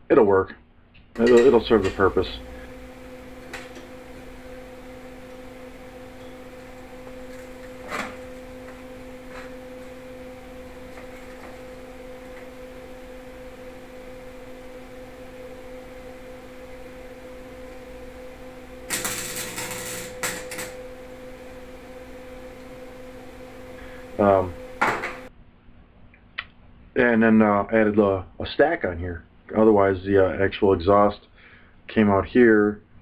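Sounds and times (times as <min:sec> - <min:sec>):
steady low hum: 0:00.0 - 0:33.0
electric welding arc: 0:01.2 - 0:13.7, 0:16.0 - 0:25.3.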